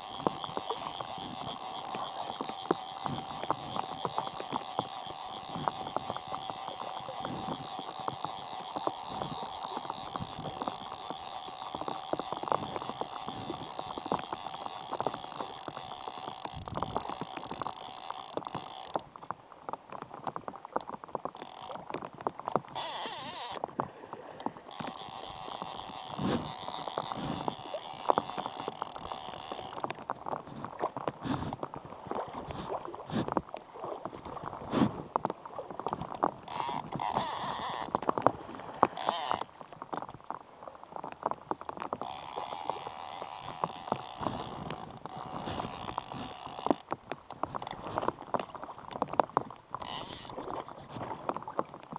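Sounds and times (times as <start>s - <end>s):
fishing reel drag clicking: 0.0s - 19.0s, 21.4s - 21.8s, 22.5s - 23.6s, 24.7s - 29.8s, 35.9s - 38.1s, 38.8s - 40.2s, 42.0s - 48.1s, 49.8s - 51.0s.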